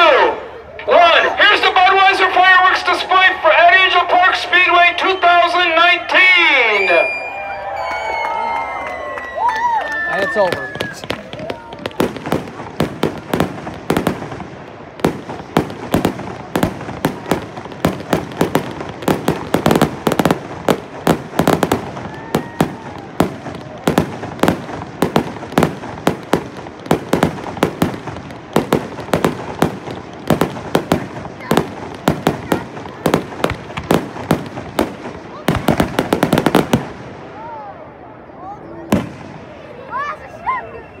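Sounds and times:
fireworks bangs and crackles: 9.6s - 40.4s.

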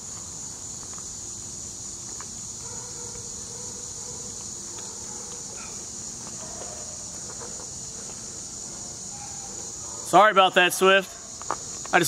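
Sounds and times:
insects chorus: 0.0s - 12.0s.

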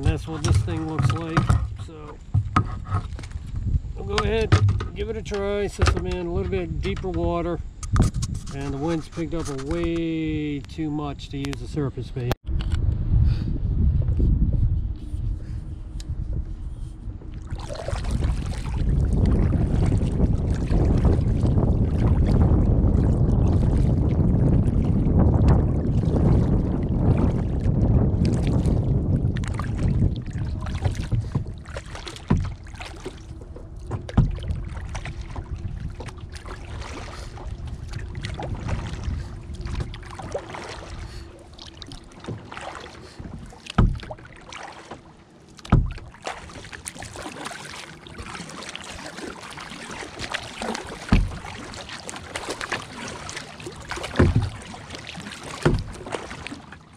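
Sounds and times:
water lapping at kayak hull: 0.0s - 12.8s, 13.4s - 56.9s
wind rumbling on microphone: 0.0s - 56.9s
short low thumps: 33.9s - 36.1s.

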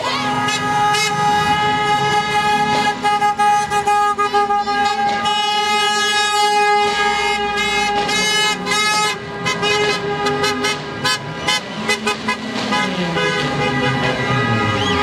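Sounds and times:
car horns honking: 0.0s - 15.0s.

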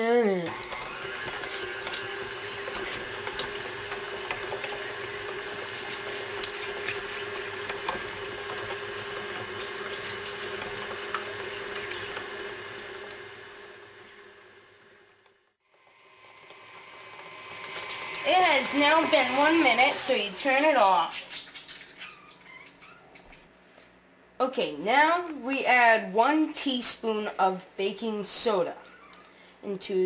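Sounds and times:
electric kitchen mixer motor hum: 0.4s - 21.0s.

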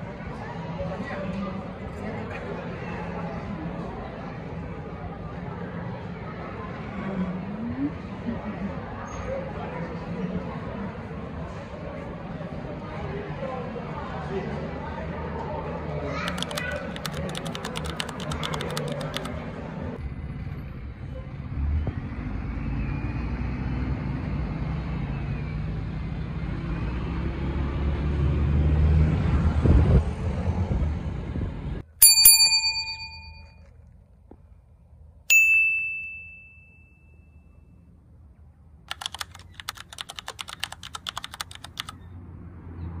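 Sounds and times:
bus and traffic rumble: 0.0s - 35.2s, 37.9s - 43.0s
bright bell dings: 32.0s - 33.6s, 35.3s - 37.7s.

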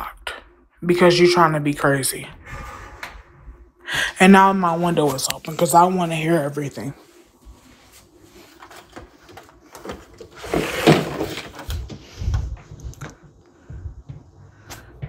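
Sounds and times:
low rumble: 1.7s - 4.9s, 12.0s - 15.0s.

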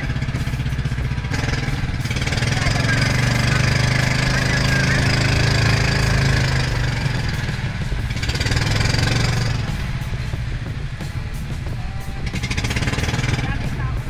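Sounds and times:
small boat engine chugging: 0.0s - 14.0s.

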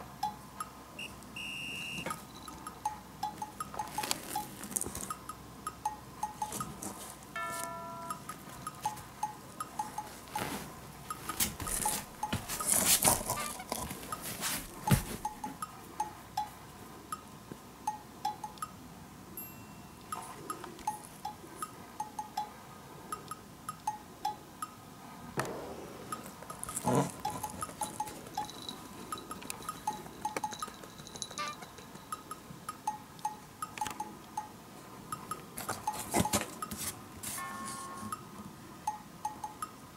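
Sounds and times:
bell-like percussion music: 7.4s - 9.0s, 19.4s - 20.2s, 37.4s - 38.2s
knocks and rustles: 10.2s - 15.5s.

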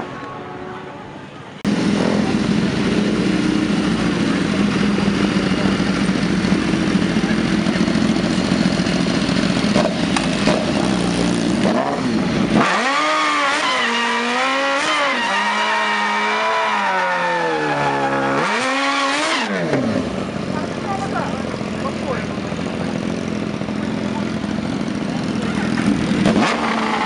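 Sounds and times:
motorcycle engine revving: 1.6s - 27.0s.

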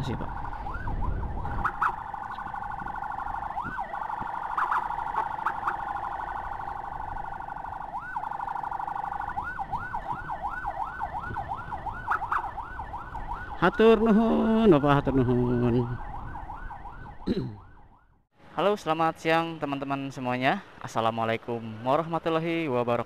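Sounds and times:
electronic siren: 0.0s - 18.2s.

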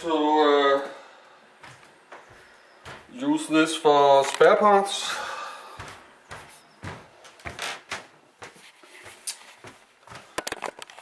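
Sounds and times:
camera handling knocks and bumps: 10.3s - 11.0s.

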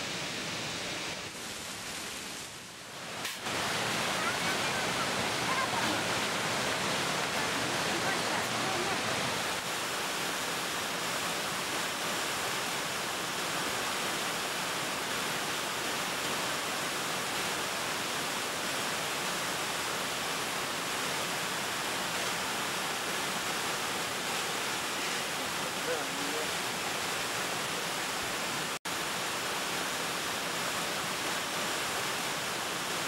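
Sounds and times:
small waterfall rushing: 0.0s - 33.0s.

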